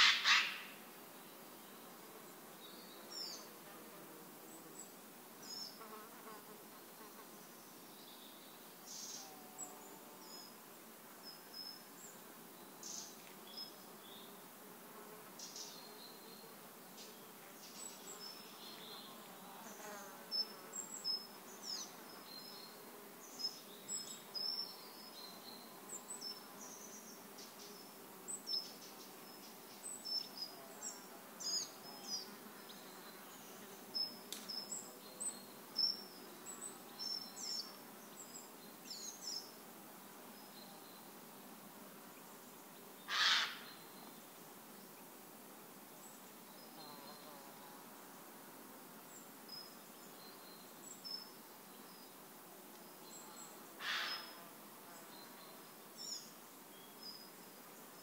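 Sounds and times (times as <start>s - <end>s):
faint insect-like buzz: 0.0s - 58.0s.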